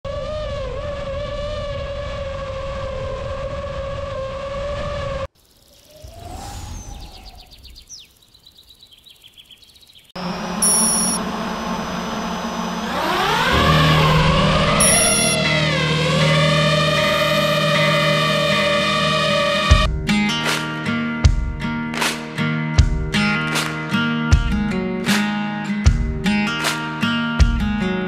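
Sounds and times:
steady wavering whine: 0:10.2 - 0:19.3
synth intro music: 0:10.2 - 0:19.7
logo sound effect: 0:14.8 - 0:15.4.

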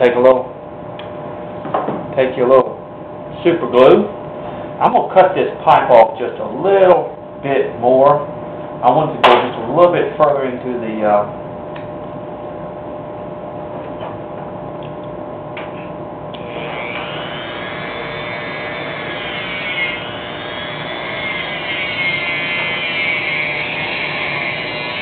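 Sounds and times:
rotary tool whining: 0:15.7 - 0:25.0.

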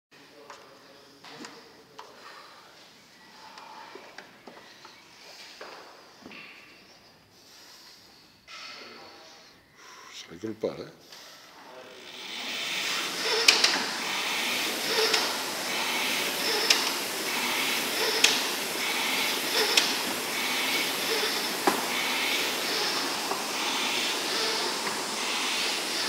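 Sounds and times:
rowing machine flywheel whooshing: 0:11.8 - 0:26.0.

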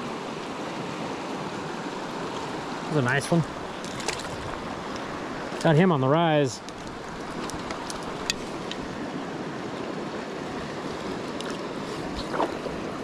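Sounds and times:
stream rushing over rocks: 0:00.0 - 0:13.0
small water splashes: 0:02.1 - 0:05.7, 0:10.9 - 0:13.0.

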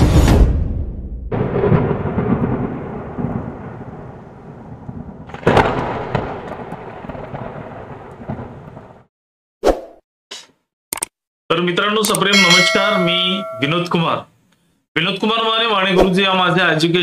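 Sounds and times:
thunder rumbling: 0:01.3 - 0:09.1.

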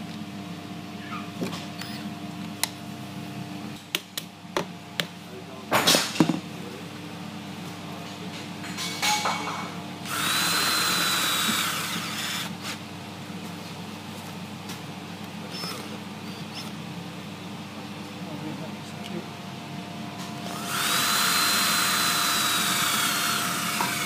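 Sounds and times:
cordless drill driving a screw: 0:10.1 - 0:12.5, 0:20.5 - 0:24.0.

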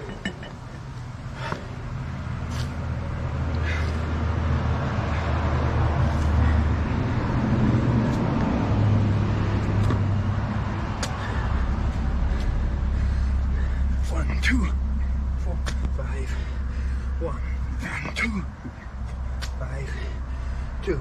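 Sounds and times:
engine humming: 0:00.0 - 0:21.0
hands and shoes tapping asphalt: 0:09.6 - 0:10.1, 0:10.9 - 0:11.3, 0:17.8 - 0:19.6.

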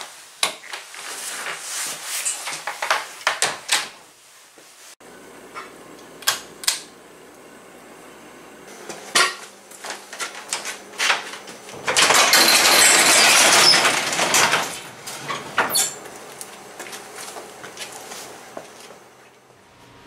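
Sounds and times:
knocks and clatters: 0:09.2 - 0:16.2
garage door rattling up tracks: 0:09.9 - 0:16.8.

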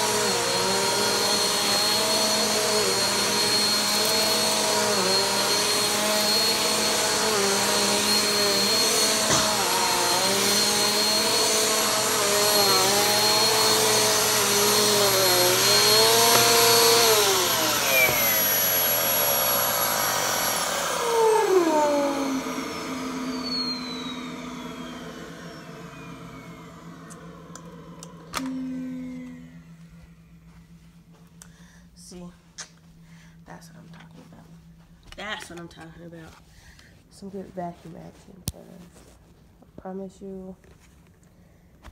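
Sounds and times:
vacuum cleaner motor whine: 0:00.0 - 0:31.4.

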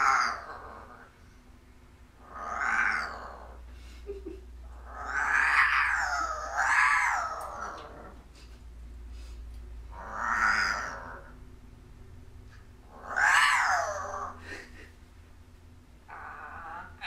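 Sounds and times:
parrot growling: 0:00.0 - 0:01.2, 0:02.1 - 0:03.7, 0:04.6 - 0:08.4, 0:09.9 - 0:11.4, 0:12.8 - 0:14.8, 0:16.0 - 0:17.0.

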